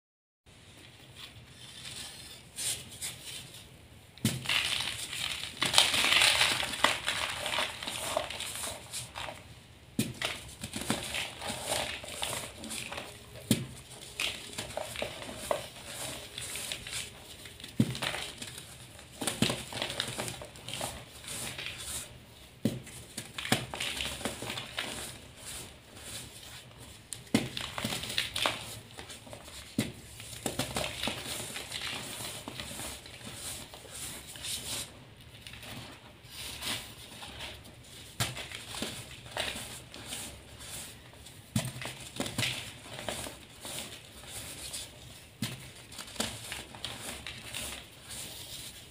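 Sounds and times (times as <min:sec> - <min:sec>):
chalk crunching by hand: 0:04.5 - 0:09.4, 0:10.3 - 0:17.5.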